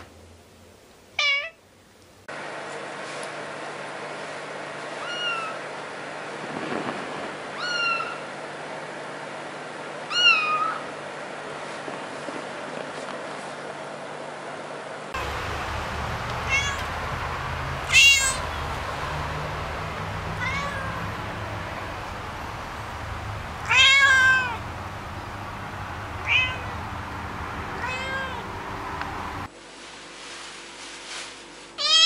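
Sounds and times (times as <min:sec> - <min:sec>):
steady low hum: 0:00.0 - 0:31.4
cat meowing: 0:01.2 - 0:01.6, 0:05.0 - 0:05.6, 0:07.6 - 0:08.3, 0:10.1 - 0:10.9, 0:16.3 - 0:17.0, 0:17.8 - 0:21.3, 0:23.6 - 0:24.6, 0:26.2 - 0:26.9, 0:27.8 - 0:28.5, 0:31.8 - 0:32.0.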